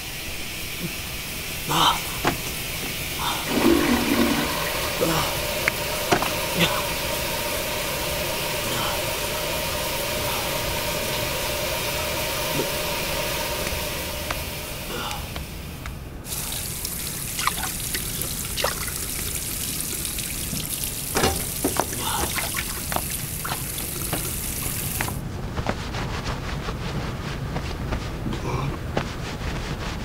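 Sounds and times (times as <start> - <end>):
tap running into a basin: 3.3 - 7.1, 16.3 - 25.2.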